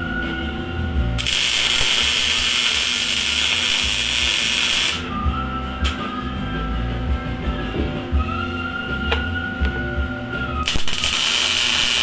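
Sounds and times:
loud steady hiss: 1.2 - 5.2, 10.6 - 12.0.

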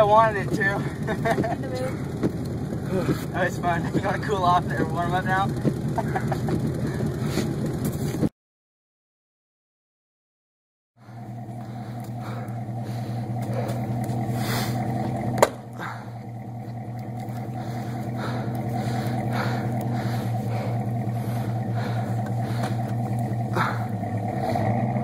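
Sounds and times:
pickup engine running: 0.0 - 8.3, 11.0 - 25.0
car door slamming: 15.4 - 15.7.

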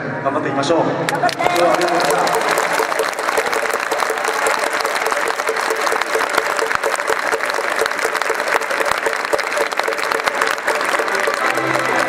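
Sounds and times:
crowd applauding: 1.1 - 12.0.

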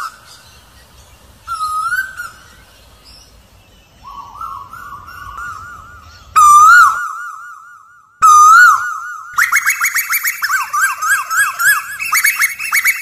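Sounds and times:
koel calling: 8.2 - 13.0.

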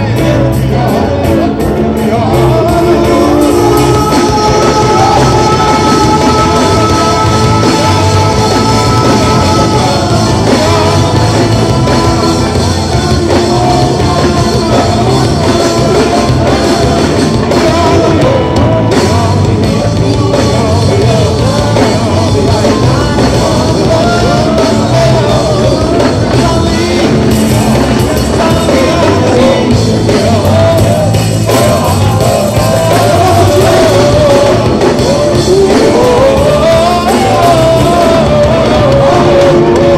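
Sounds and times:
group of singers singing: 0.0 - 39.9
live band music: 0.0 - 39.9.

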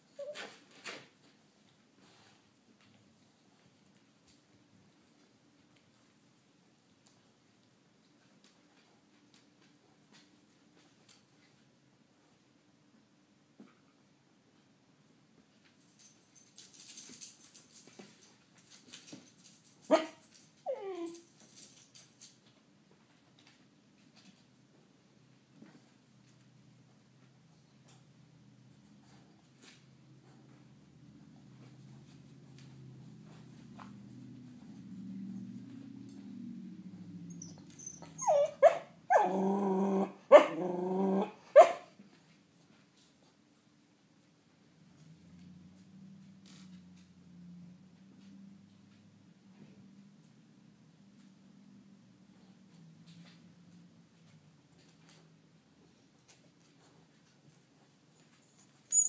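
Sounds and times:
puppy whine: 0.0 - 0.7, 19.9 - 21.4, 35.0 - 41.8, 58.2 - 59.0
puppy yelp: 0.1 - 0.6, 19.9 - 21.4, 37.3 - 40.6, 41.2 - 42.0, 58.2 - 59.0
puppy barking: 19.9 - 20.2, 37.4 - 39.4, 40.3 - 40.6, 41.2 - 42.0.

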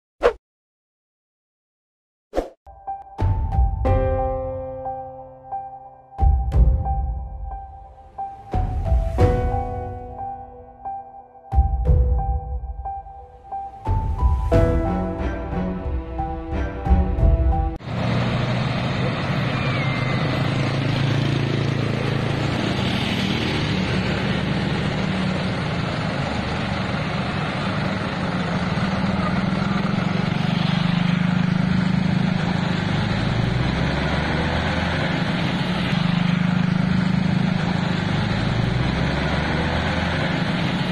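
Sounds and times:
vehicle engines humming: 5.4 - 40.9
street noise: 13.5 - 40.9.

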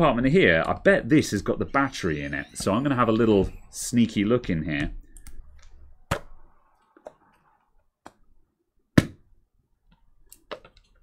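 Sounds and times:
plastic parts clicking and knocking: 9.9 - 11.0.

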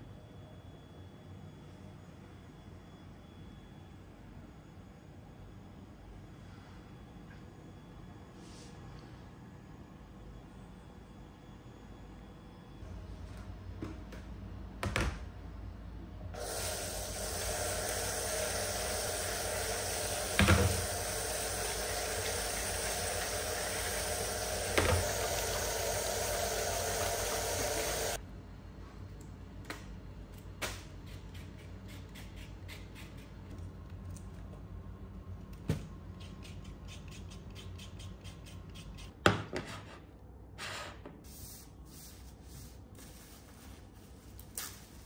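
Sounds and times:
water running from a tap: 16.4 - 28.2.

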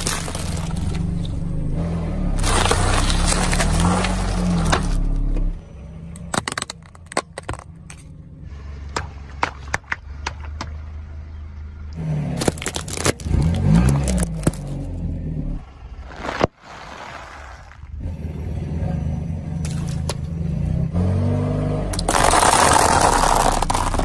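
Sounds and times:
tyre crushing plastic packets: 0.0 - 1.2, 2.4 - 5.2, 12.4 - 14.8, 22.0 - 24.0.

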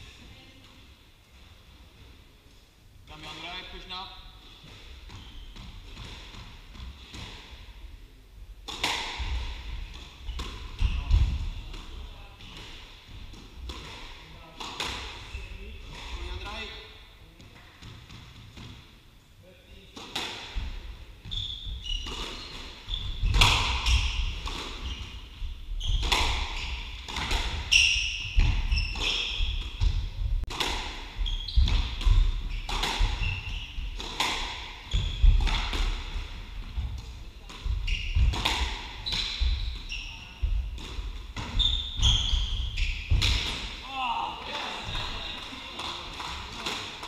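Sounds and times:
shoes squeaking on wooden floor: 21.2 - 30.2, 31.1 - 34.1, 37.6 - 40.7, 41.4 - 43.5.

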